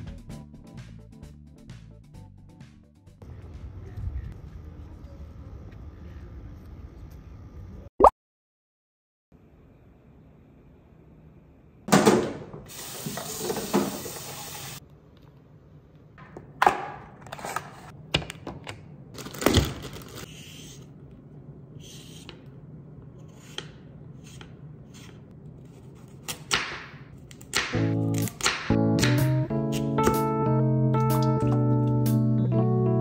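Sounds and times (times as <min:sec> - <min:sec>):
hiss: 0:12.7 - 0:14.8
packaging crinkling and knocking: 0:19.2 - 0:20.3
knife on wooden cutting board: 0:23.2 - 0:26.4.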